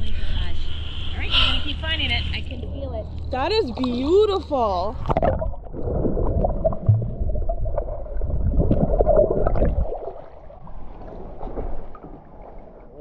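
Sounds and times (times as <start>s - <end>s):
underwater river gurgling: 2.6s - 13.0s.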